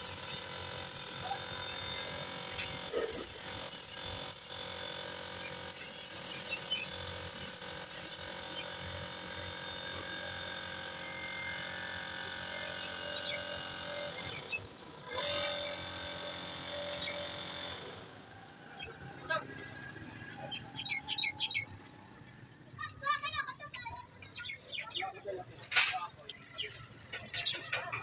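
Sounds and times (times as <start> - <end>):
compressed air hissing from hose: 0.0 - 1.7, 2.9 - 4.5, 5.7 - 8.6
steady mechanical hum: 0.0 - 28.0.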